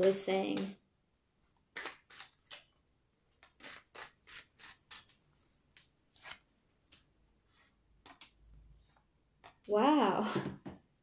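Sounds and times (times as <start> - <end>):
cards shuffling: 3.4 - 9.7.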